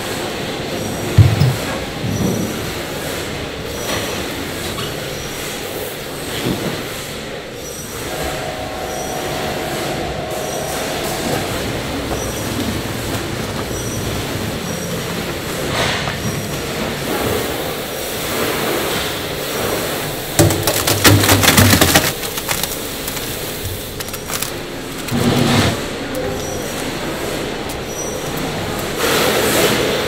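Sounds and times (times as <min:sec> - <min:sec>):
mixer squeal: 0:07.7 - 0:15.1.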